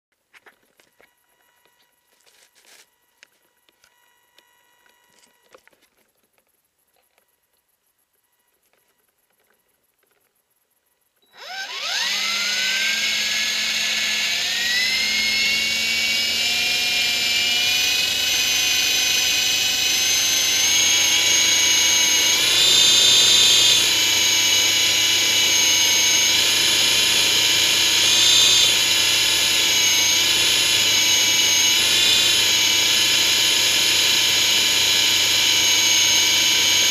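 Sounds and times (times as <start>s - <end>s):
helicopter motor whine: 11.3s - 36.9s.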